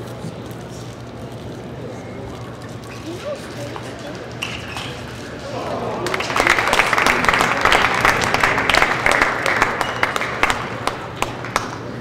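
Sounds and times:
crowd applause: 5.3s - 12.0s.

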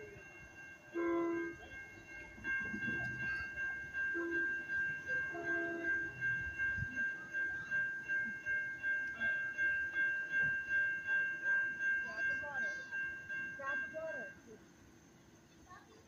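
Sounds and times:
pulsing high ringing: 0.0s - 15.1s
locomotive horn blasts: 1.0s - 1.6s.

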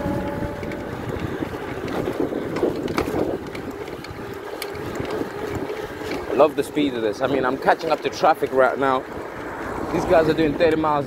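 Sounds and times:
electric motor whine: 0.0s - 6.4s
wind rushing over microphone: 0.0s - 6.8s
tyre noise on road: 0.0s - 11.0s.

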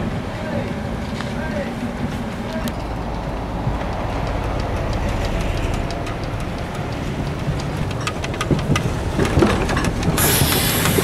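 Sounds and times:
sharp clicks of wheels: 0.0s - 11.0s
tram rumbling on track: 0.0s - 11.0s
brooms sweeping snow hiss: 10.2s - 11.0s.

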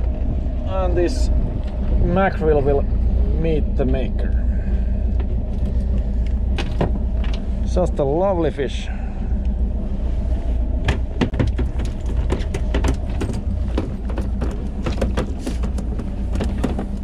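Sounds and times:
faint hum: 0.0s - 17.0s
wind rumble on microphone: 0.0s - 17.0s
sharp taps and knocks: 10.8s - 17.0s.

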